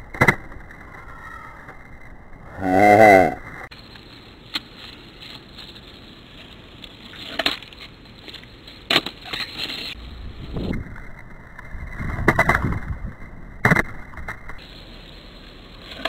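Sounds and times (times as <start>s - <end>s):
skateboard wheels rolling on asphalt: 3.4s - 16.0s.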